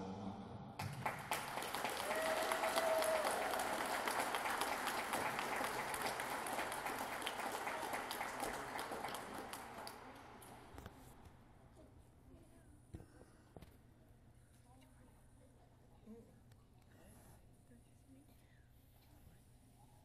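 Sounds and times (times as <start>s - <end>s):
audience applauding: 0.8s - 10.7s.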